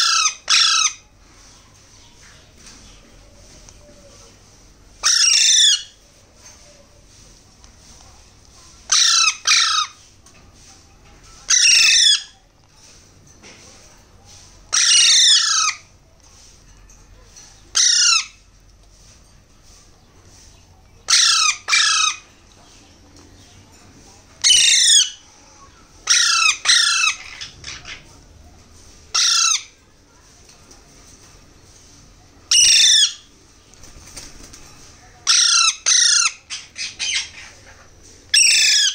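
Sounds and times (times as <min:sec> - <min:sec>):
parakeet chicks begging calls: 0:00.0 - 0:01.0, 0:05.0 - 0:06.0, 0:08.8 - 0:10.0, 0:11.5 - 0:12.4, 0:14.7 - 0:15.8, 0:17.7 - 0:18.4, 0:21.1 - 0:22.3, 0:24.4 - 0:25.2, 0:26.0 - 0:28.1, 0:29.1 - 0:29.8, 0:32.5 - 0:33.3, 0:35.2 - 0:38.9.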